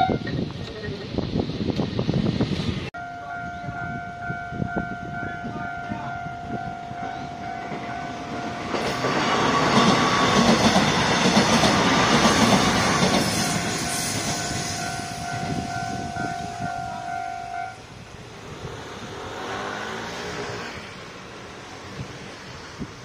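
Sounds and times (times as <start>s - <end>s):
electric train passing: 0.0s - 23.0s
level crossing warning tone: 3.0s - 10.9s, 13.4s - 17.8s.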